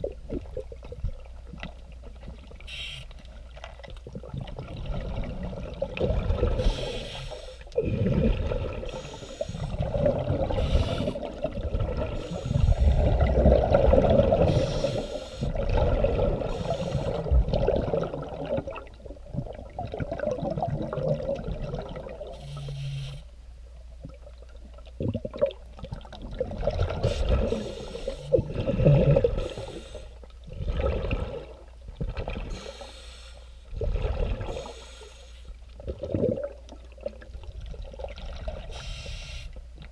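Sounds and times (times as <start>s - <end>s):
exhaled air bubbling underwater: 0.0s - 39.9s
diver breathing through regulator: 6.5s - 8.2s, 8.9s - 11.4s, 12.1s - 13.4s, 14.3s - 15.6s, 16.4s - 17.3s, 22.3s - 23.3s, 27.0s - 30.2s, 32.5s - 33.8s, 34.4s - 35.6s, 38.7s - 39.6s.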